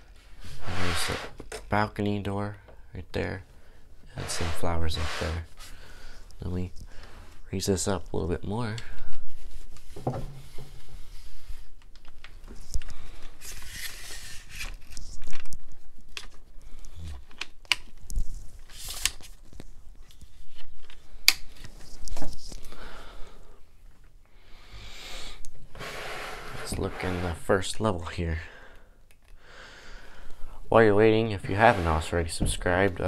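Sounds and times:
rustling brushes: 4.1s - 7.6s, 25.7s - 27.6s, 31.0s - 33.0s.

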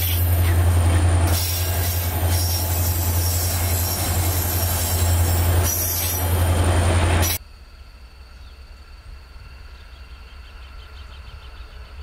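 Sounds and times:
locomotive engine drone: 0.0s - 7.4s
rolling rail noise: 0.0s - 7.4s.

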